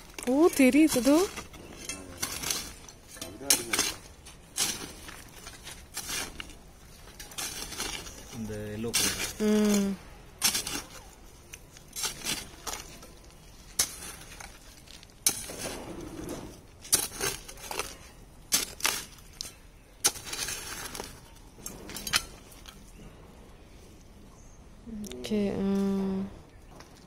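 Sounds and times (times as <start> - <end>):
hand hoe striking soil: 0.0 - 9.8, 10.4 - 13.1, 13.7 - 22.5
stones scraping and clinking: 0.0 - 23.1.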